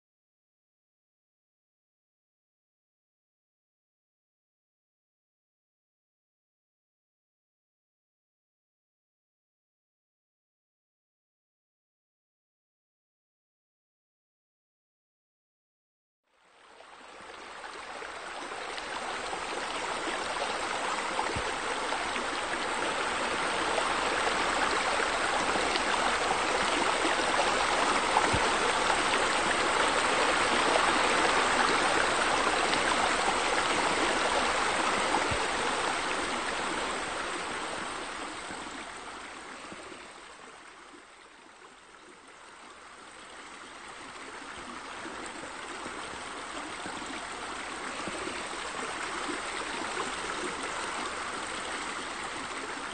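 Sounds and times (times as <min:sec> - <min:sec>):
running water: 0:16.7 - 0:52.9.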